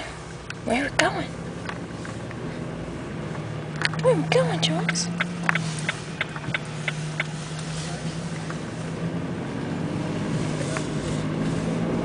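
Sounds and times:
car engine hum: 0.0 - 12.0
road noise inside car: 0.0 - 12.0.

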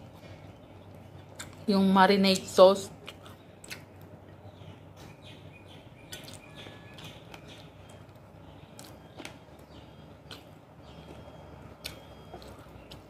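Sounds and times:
person chewing: 0.0 - 1.7, 3.0 - 4.2, 6.0 - 13.0
faint bird chirps: 4.3 - 13.0.

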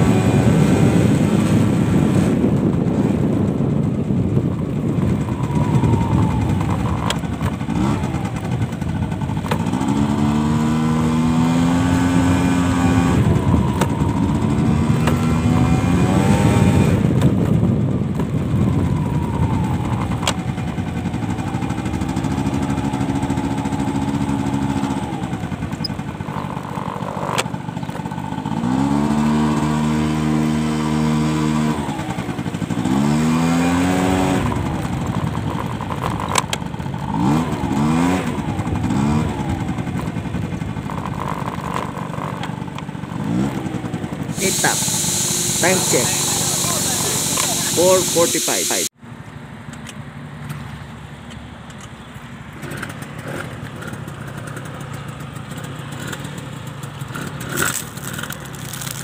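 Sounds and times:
wind rumble on microphone: 0.0 - 44.4
motorcycle engine revving: 0.0 - 49.0, 52.4 - 59.0.

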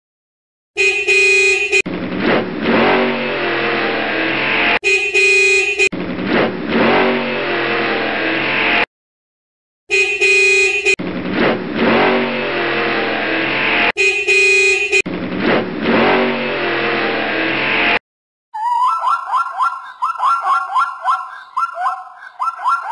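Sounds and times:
car horn honking: 0.8 - 1.8, 4.8 - 5.9, 9.9 - 11.0, 13.8 - 15.1
vehicle engine running: 1.9 - 8.8, 11.0 - 18.0.

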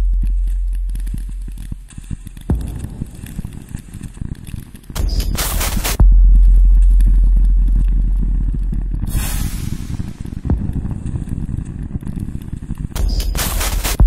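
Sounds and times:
deep bass drone: 0.0 - 3.4, 5.0 - 11.7
crackling texture: 0.0 - 14.0
hissing noise swell: 9.1 - 10.5.

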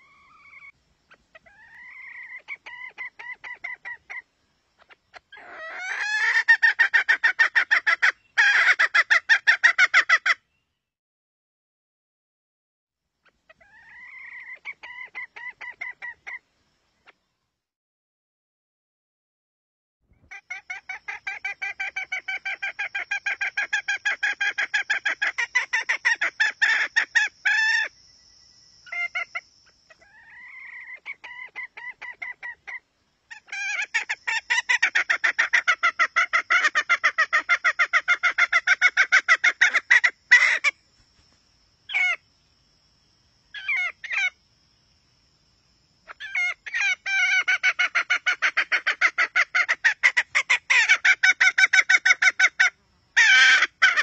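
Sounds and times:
hen clucking: 0.0 - 10.4, 13.5 - 16.4, 20.2 - 27.9, 28.9 - 40.8, 46.1 - 54.0.

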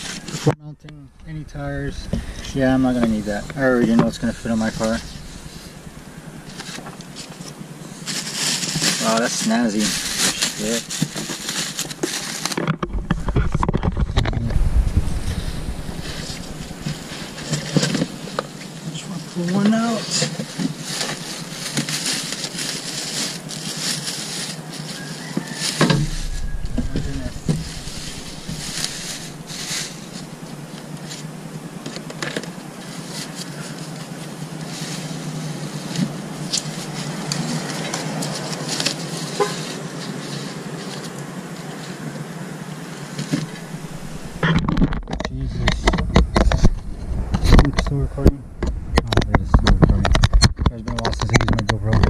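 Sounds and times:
low rumble: 0.0 - 7.9, 9.8 - 10.6, 12.9 - 18.8, 25.9 - 31.7, 43.5 - 50.5
plastic wrap crinkling: 4.2 - 13.6, 19.8 - 31.5.

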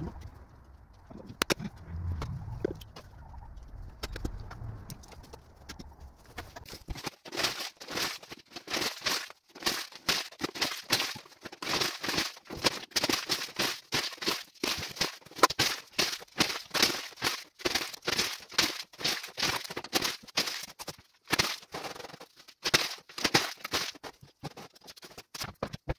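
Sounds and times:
paper crumpling and tearing: 5.1 - 25.9.

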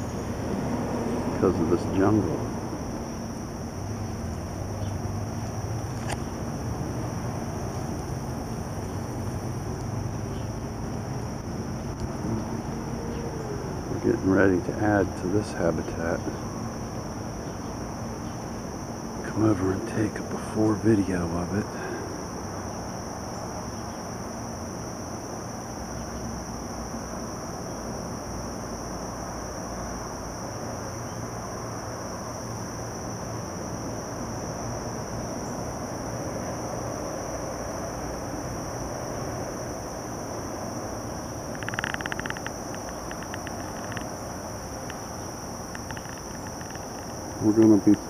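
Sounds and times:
insect chorus drone: 0.0 - 48.0
rapid pulsing chirps: 40.7 - 48.0.

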